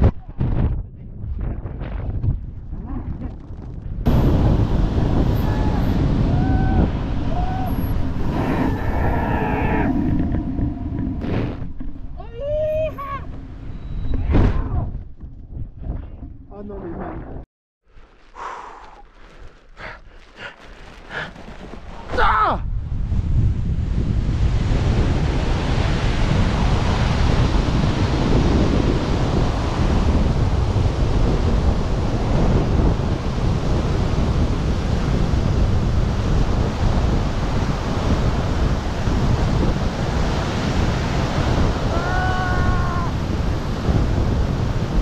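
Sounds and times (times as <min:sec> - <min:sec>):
wind roaring on microphone: 0:00.0 - 0:17.4, 0:19.8 - 0:45.0.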